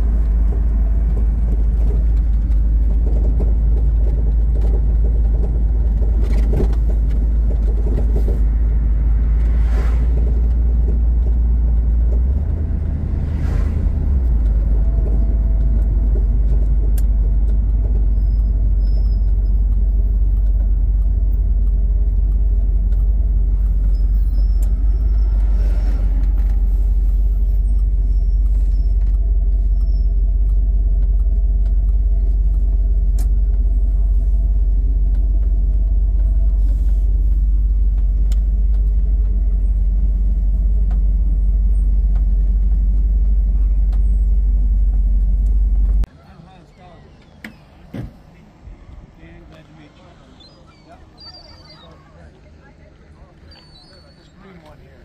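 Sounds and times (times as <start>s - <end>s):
car engine and road rumble: 0.0s - 55.0s.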